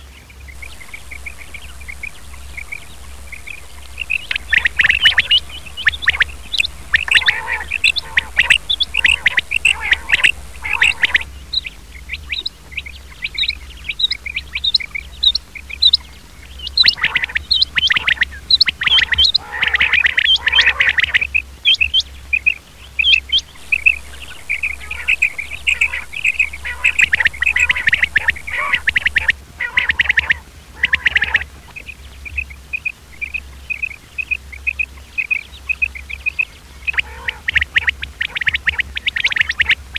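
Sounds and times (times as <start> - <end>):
low hum: 0.0 - 19.5, 23.2 - 34.6
quail calling: 0.5 - 16.0, 16.6 - 39.9.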